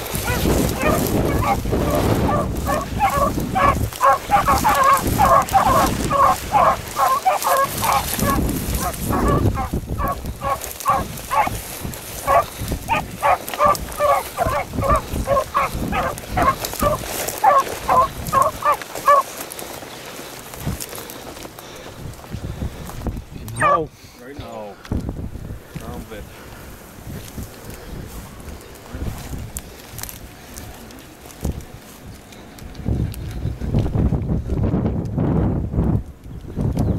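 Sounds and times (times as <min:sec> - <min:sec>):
hounds baying: 0:00.0 - 0:19.5, 0:23.6 - 0:23.9.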